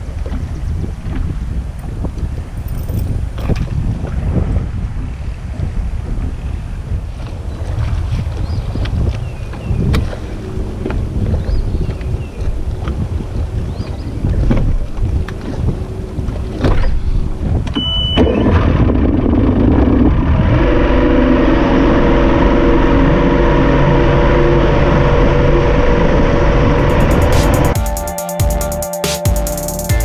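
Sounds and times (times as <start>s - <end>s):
water slapping a boat hull: 0.0s - 20.3s
wind on microphone: 0.0s - 27.8s
outboard motor running: 9.5s - 27.7s
short beep: 17.8s - 18.6s.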